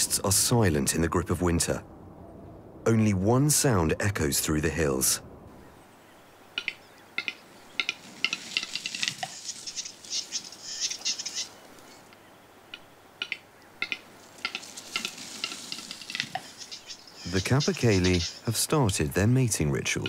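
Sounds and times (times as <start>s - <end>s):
bird scraping hissing phrase: 14.4s - 18.6s.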